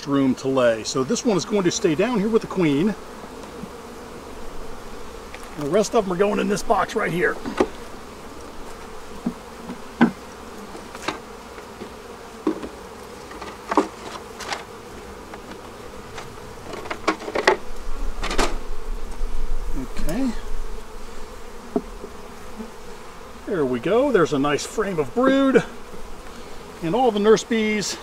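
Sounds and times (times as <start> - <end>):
honeybees buzzing: 0.0 - 28.0
wooden hive frames knocking: 5.1 - 19.2, 19.9 - 22.4.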